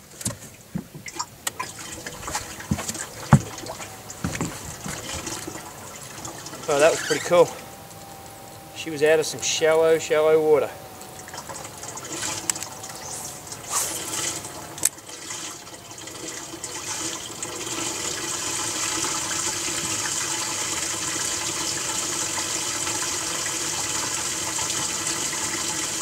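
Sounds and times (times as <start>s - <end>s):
running water rushing: 0.0s - 26.0s
brief swish: 13.1s - 14.2s.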